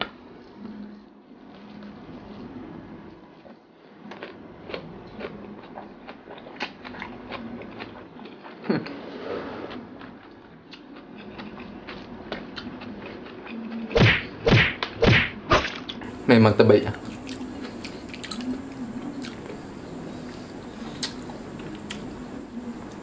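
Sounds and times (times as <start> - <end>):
person chewing food: 3.4 - 9.0, 9.7 - 14.0, 16.9 - 23.0
wet mouth clicks and lip smacks: 20.3 - 21.2.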